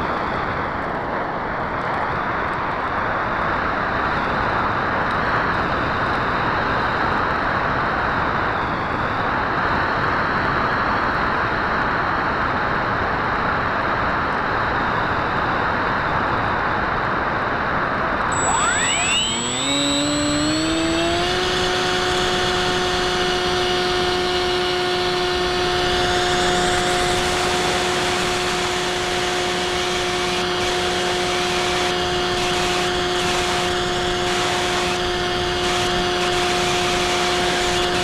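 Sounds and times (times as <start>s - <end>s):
faint high whine: 18.3s - 38.0s.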